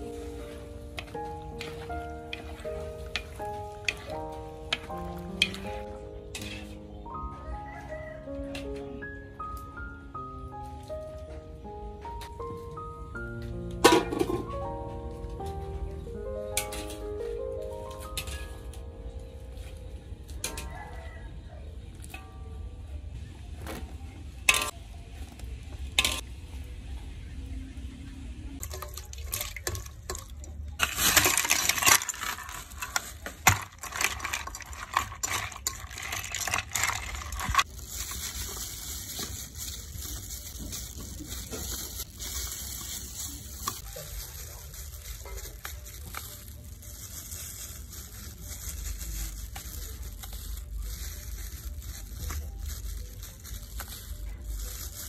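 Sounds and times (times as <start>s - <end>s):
water sloshing in a metal bowl: 28.6s - 38.3s
ice cubes clinking: 28.6s - 55.0s.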